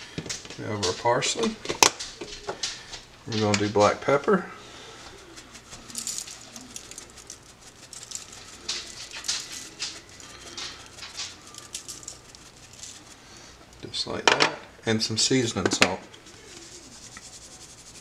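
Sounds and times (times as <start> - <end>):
pepper grinder clicks and rattles: 5.6 - 13.8.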